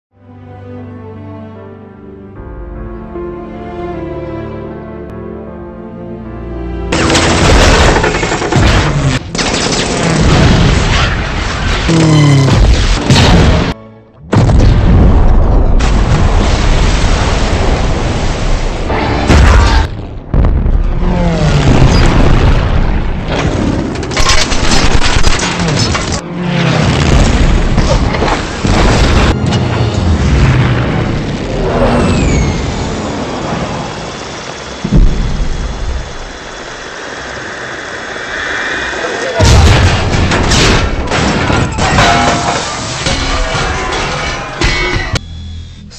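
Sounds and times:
soft film score music: 0:00.1 - 0:08.9, 0:12.5 - 0:15.5
machine-gun fire: 0:06.9 - 0:11.2
booms: 0:10.0 - 0:18.4, 0:19.2 - 0:23.7, 0:39.4 - 0:43.7
fighter plane engines: 0:28.0 - 0:40.4.

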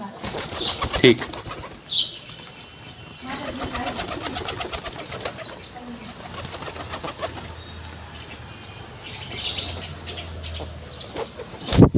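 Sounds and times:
pigeons flapping wings: 0:00.0 - 0:02.0, 0:03.2 - 0:07.6.

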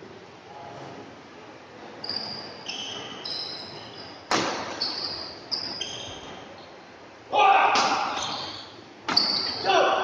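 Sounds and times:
shoes squealing on court floor: 0:02.0 - 0:06.7, 0:07.9 - 0:09.8
racket hitting shuttlecock: 0:04.3 - 0:04.8.

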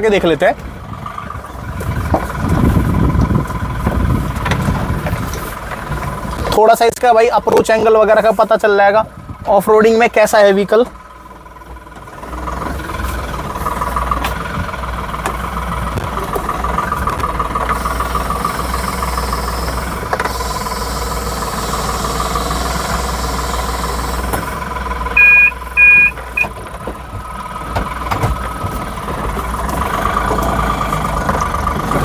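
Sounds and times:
diesel engine rumbling: 0:00.0 - 0:32.0
short high-pitched beeps: 0:25.2 - 0:26.5.

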